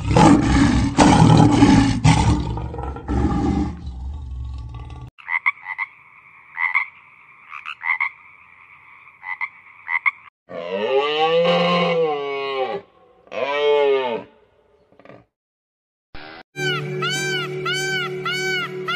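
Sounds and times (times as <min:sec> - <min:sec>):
lion roaring: 0:00.0 - 0:05.1
frog calling: 0:05.2 - 0:10.3, 0:16.6 - 0:18.9.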